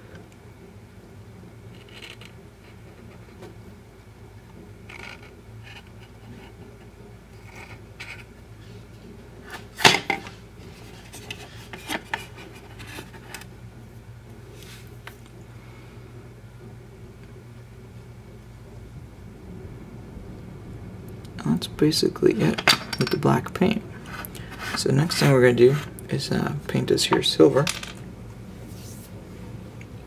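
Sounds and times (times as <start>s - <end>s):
steady low hum: 0.0s - 30.0s
faint handling noises: 4.9s - 13.5s.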